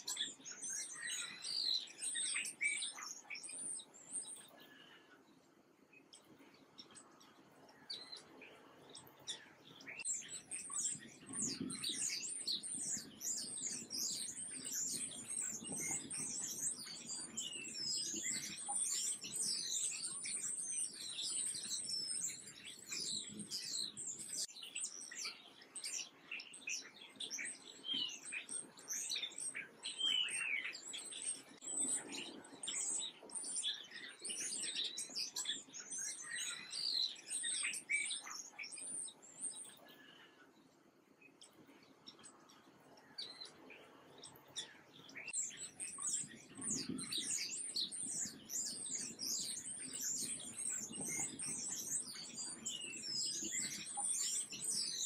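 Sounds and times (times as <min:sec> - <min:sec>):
sparrows chirping: 0:00.0 - 0:55.0.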